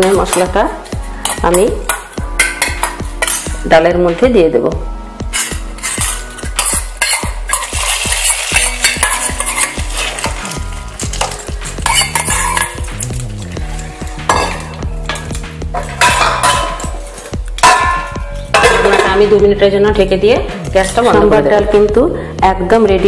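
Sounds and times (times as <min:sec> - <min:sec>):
metal spoon scraping a pan: 0:00.0 - 0:03.6, 0:05.2 - 0:19.4
spoon clinking against pot: 0:01.2 - 0:03.6, 0:05.3 - 0:10.4, 0:11.0 - 0:13.2, 0:14.2 - 0:19.2
oil sizzling: 0:05.2 - 0:19.3.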